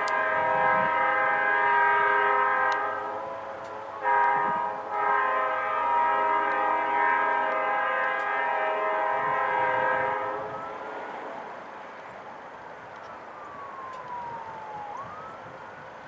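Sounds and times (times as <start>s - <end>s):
locomotive air horn: 0.0s - 11.3s
low train noise: 0.0s - 16.0s
siren wailing: 0.0s - 16.0s.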